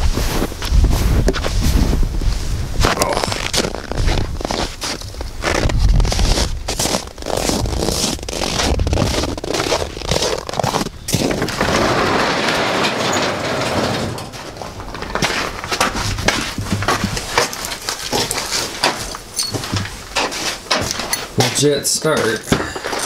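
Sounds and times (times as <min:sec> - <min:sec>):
footsteps crunching through snow: 0:00.0 - 0:11.5.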